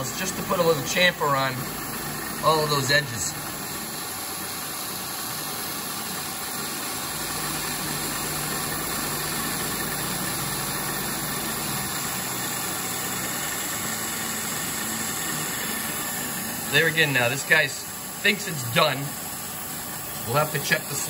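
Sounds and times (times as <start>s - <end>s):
milling machine hum: 0.0s - 21.0s.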